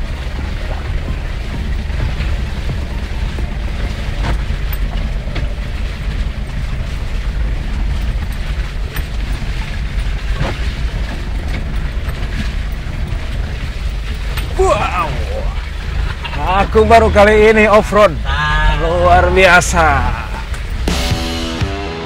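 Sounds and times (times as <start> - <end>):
knocks and rattles: 0.0 - 18.2, 19.6 - 21.6
low engine rumble: 0.0 - 22.0.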